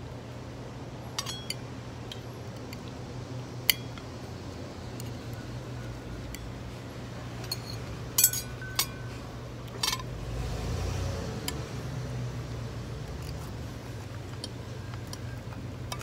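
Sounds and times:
low background hum: 0.0s - 16.0s
cutlery clinking on plates: 7.5s - 9.1s.

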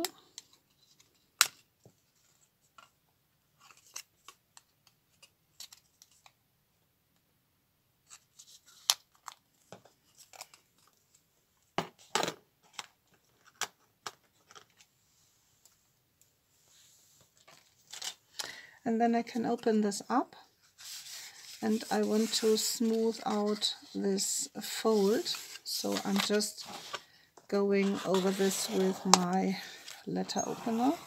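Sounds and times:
small scrapes: 20.6s - 23.9s, 27.8s - 31.0s
paper rustling: 20.6s - 24.0s, 24.6s - 27.1s, 27.8s - 31.0s.

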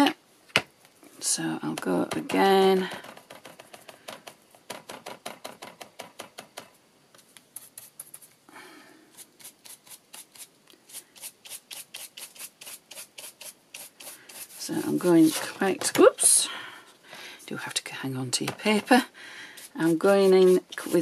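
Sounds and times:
stiff brush scrubbing on card: 9.2s - 15.6s, 19.6s - 21.0s.

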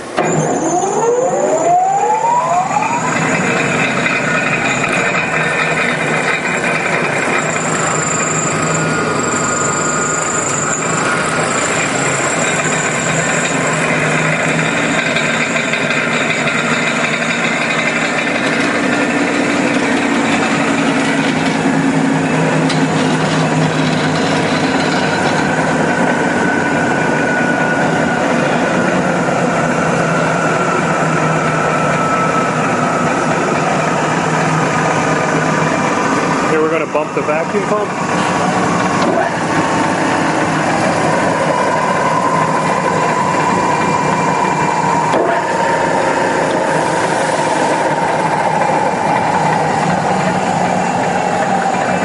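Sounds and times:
machine motor whine and hum: 0.0s - 52.0s.

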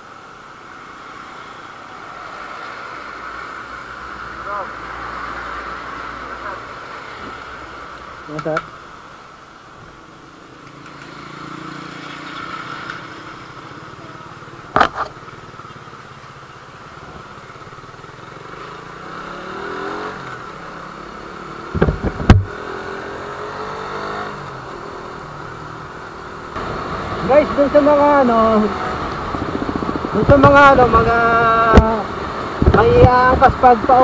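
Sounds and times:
sharp thumps: 21.7s - 22.6s.

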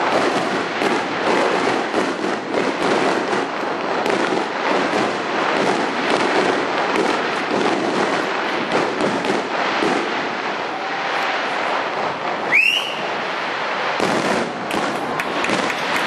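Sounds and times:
fireworks bursting: 0.0s - 16.0s
crackling glitter: 14.4s - 16.0s.

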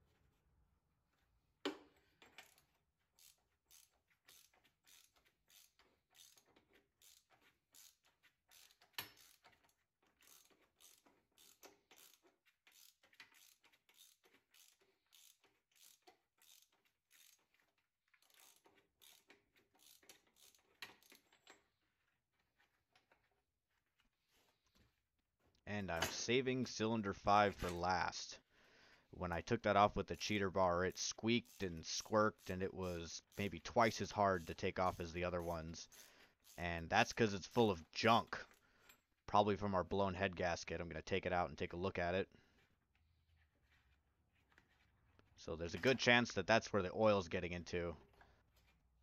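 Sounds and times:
ratchet wrench clicking: 1.7s - 21.6s, 30.2s - 37.8s.

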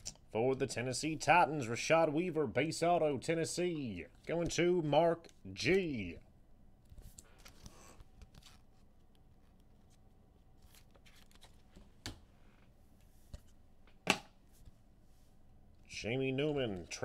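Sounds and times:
cards rustling and sliding: 6.9s - 10.0s, 10.6s - 11.9s.

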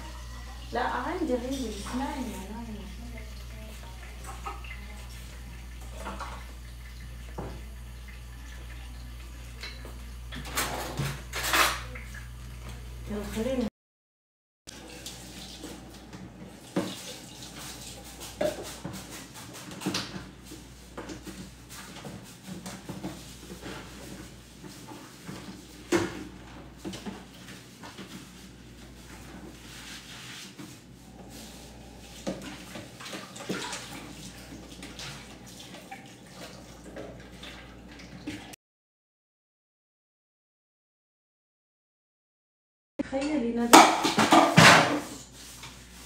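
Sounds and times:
tap water running into sink: 0.1s - 12.7s, 14.7s - 22.0s, 32.0s - 38.6s
pots and dishes clinking: 8.5s - 12.1s, 43.8s - 45.2s.

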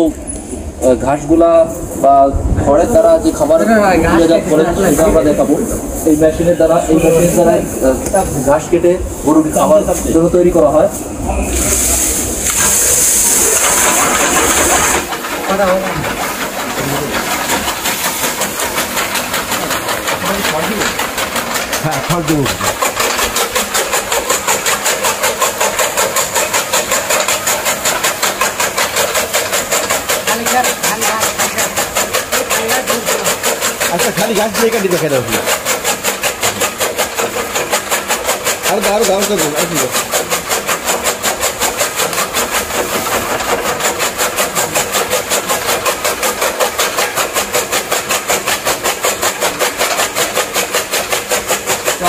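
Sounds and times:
high whine: 1.7s - 17.1s
motor running: 2.5s - 52.0s
chaff cutter blades chopping: 2.8s - 52.0s.

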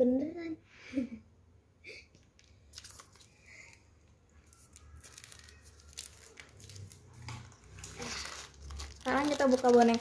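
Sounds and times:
toy packaging rustling: 2.2s - 10.0s.

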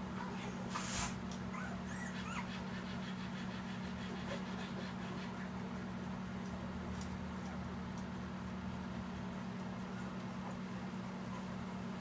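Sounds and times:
steady low hum: 0.0s - 12.0s
puppies squeaking and whimpering: 1.5s - 5.6s, 11.2s - 11.6s.

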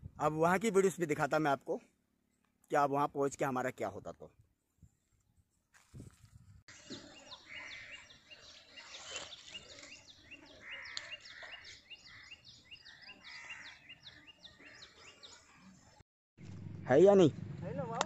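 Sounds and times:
birds chirping: 6.7s - 16.0s.

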